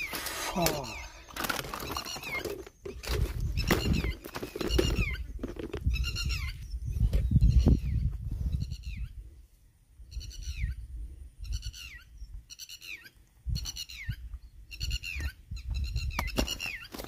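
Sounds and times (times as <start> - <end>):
birds calling: 0.0 - 17.0
wind rumble on microphone: 2.8 - 12.6, 13.4 - 16.8.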